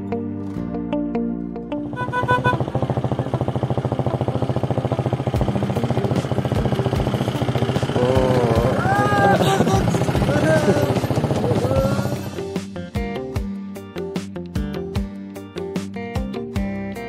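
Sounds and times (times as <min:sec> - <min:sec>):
diesel engine running: 0:01.6 - 0:13.1
voices calling out: 0:08.0 - 0:12.3.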